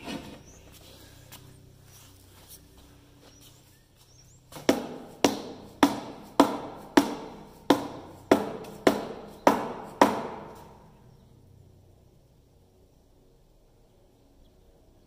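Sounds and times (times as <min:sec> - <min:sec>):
mallet striking cast iron: 0:04.6 - 0:10.8.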